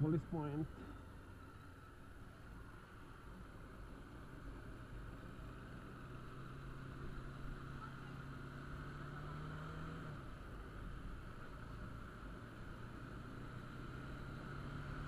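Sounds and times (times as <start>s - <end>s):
motorcycle engine accelerating: 4.8s - 15.0s.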